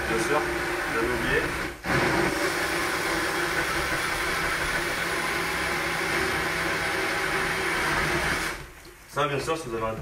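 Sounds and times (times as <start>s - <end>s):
blender running: 0.0s - 8.7s.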